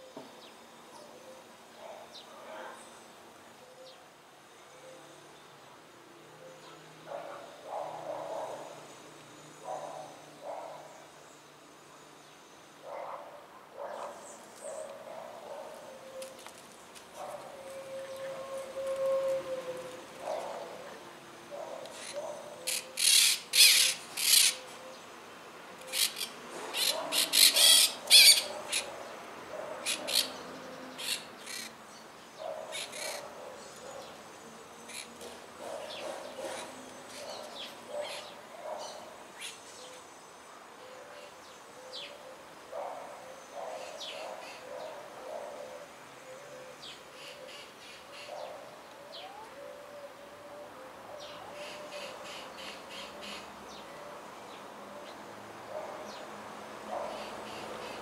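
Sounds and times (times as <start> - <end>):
parakeets calling: 21.6 - 24.8, 25.8 - 29.0, 29.8 - 31.7, 32.7 - 33.2, 34.9 - 39.6.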